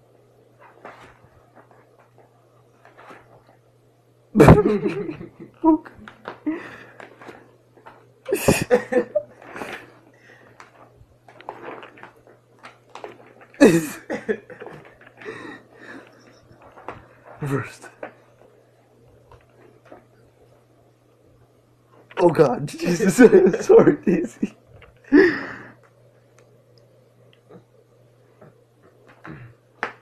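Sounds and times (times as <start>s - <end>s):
steady low hum: 0.0s - 30.0s
people laughing: 4.4s - 5.6s, 8.3s - 9.3s, 13.6s - 14.8s.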